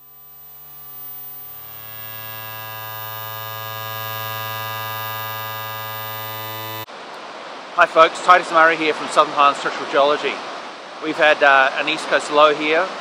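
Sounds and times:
synthesizer drone chord: 0:00.0 - 0:06.9.

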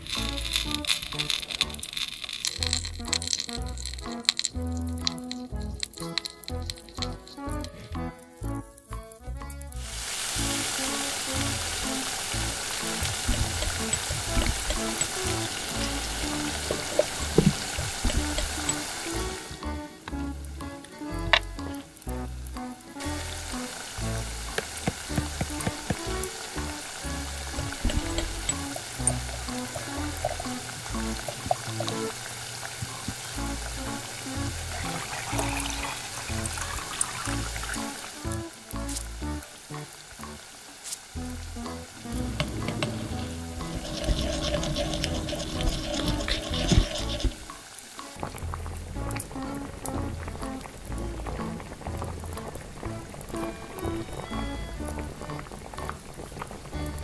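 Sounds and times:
spoon stirring: 0:00.0 - 0:08.1, 0:12.8 - 0:18.9, 0:42.2 - 0:47.6
fat sizzling in a pot: 0:00.0 - 0:57.0.

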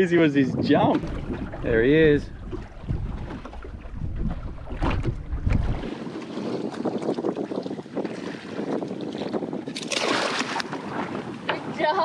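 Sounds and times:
wind buffeting microphone: 0:00.0 - 0:12.0
water splashing against boat hull: 0:00.6 - 0:12.0
fish thrashing at water surface: 0:09.7 - 0:10.7.

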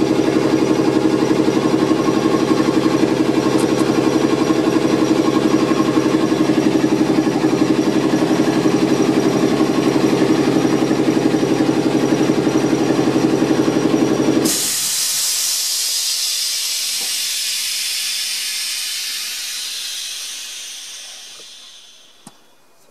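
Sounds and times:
air compressor pulsing hum: 0:00.0 - 0:22.7
hiss of released air: 0:14.4 - 0:22.5.

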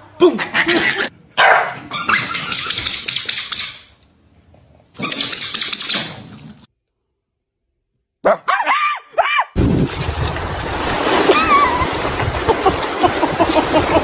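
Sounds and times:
dog claws scrabbling on tiles: 0:02.2 - 0:03.9.

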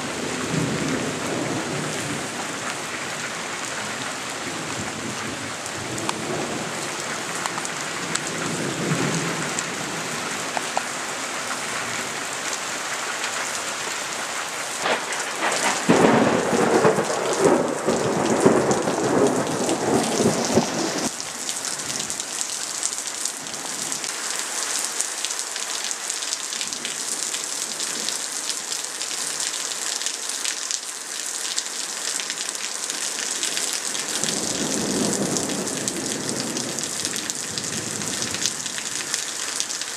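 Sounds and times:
heavy rain falling: 0:00.0 - 0:39.9
thunder rumbling: 0:00.2 - 0:11.1, 0:14.8 - 0:21.2, 0:34.1 - 0:39.0.

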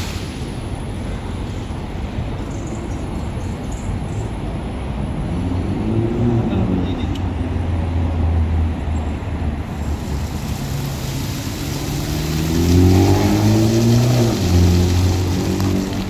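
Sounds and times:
car engine humming: 0:09.4 - 0:16.0
tyre hiss: 0:09.7 - 0:16.0.

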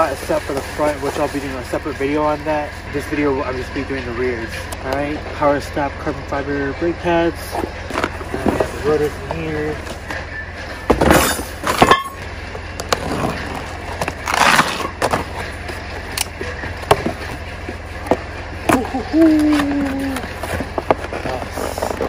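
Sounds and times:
cardboard tearing: 0:14.2 - 0:14.9.

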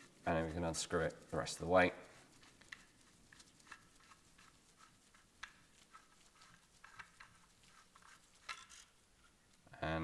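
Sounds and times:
metal clicks and scrapes: 0:05.4 - 0:09.0.

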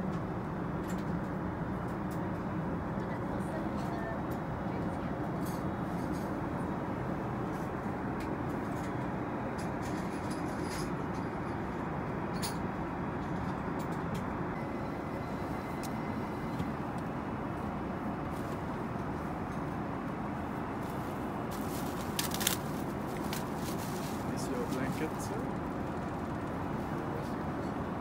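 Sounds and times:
airplane cabin hum: 0:00.0 - 0:28.0.

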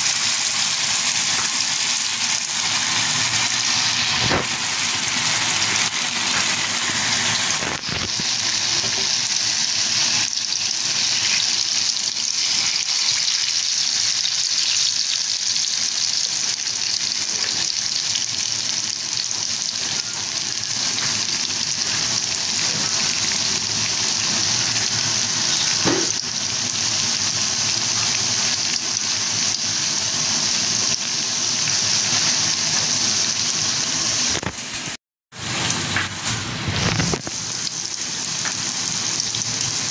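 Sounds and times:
food deep-frying in oil: 0:00.0 - 0:39.9.

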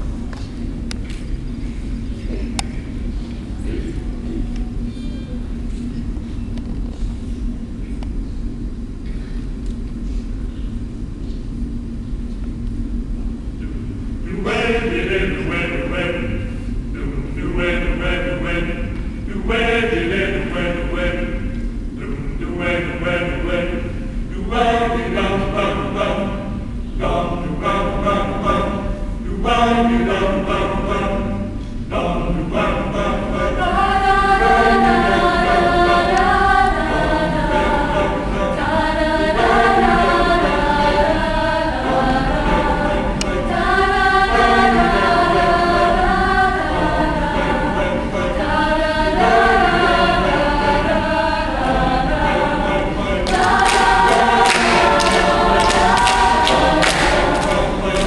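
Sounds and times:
choir singing a cappella: 0:14.2 - 0:58.0
hand clapping: 0:53.2 - 0:58.0.

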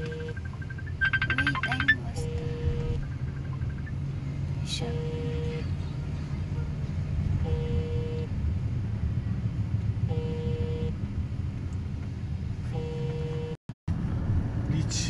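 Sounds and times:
short electronic beep: 0:00.0 - 0:04.0
car cabin rumble: 0:00.0 - 0:13.5.

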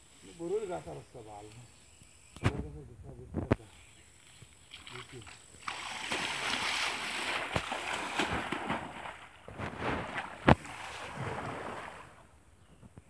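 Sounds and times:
water splashing and sloshing: 0:04.2 - 0:12.3.

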